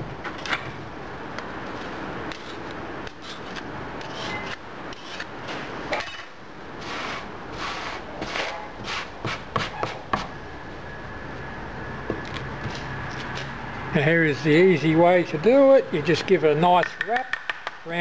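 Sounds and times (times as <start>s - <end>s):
scraper scraping sand: 6.8s - 9.8s.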